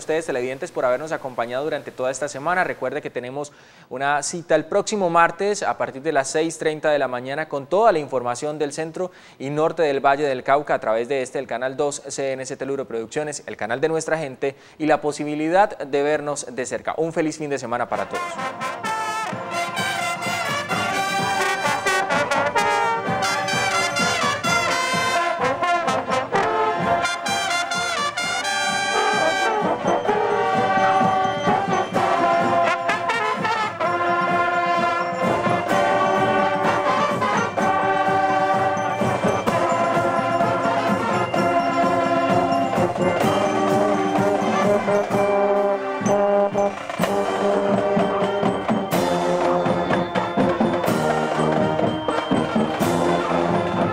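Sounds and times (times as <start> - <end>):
marching band brass playing: 17.9 - 53.9.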